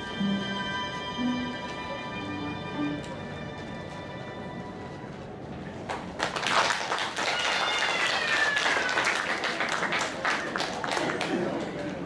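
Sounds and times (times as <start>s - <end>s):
audience applause: 5.9s - 12.0s.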